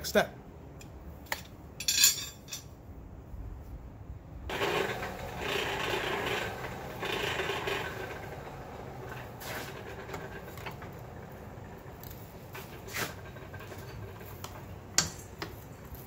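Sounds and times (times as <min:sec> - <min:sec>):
forge blower whirring: 0:04.5 - 0:16.0.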